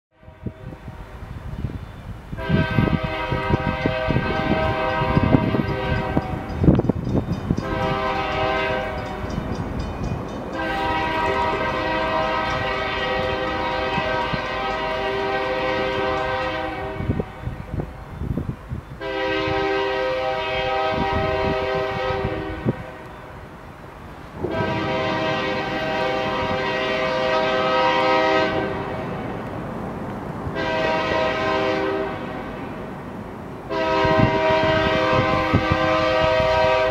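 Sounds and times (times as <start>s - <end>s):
locomotive air horn blasts: 0.1s - 1.0s, 2.4s - 6.6s, 7.6s - 9.4s, 10.5s - 17.6s, 19.0s - 23.1s, 24.4s - 29.3s, 30.5s - 32.8s, 33.7s - 36.9s.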